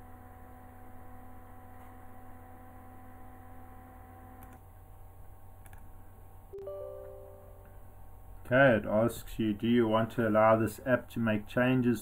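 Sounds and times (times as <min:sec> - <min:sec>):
low electrical hum: 0:00.0 - 0:12.0
faint clicks: 0:05.6 - 0:05.9
faint steady tones: 0:06.5 - 0:08.2.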